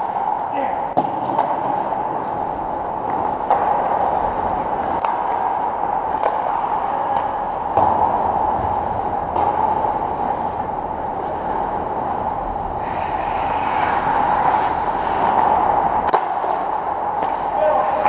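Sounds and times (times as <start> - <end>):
steady rink hum: 0.0 - 18.0
skates scraping on ice: 12.8 - 18.0.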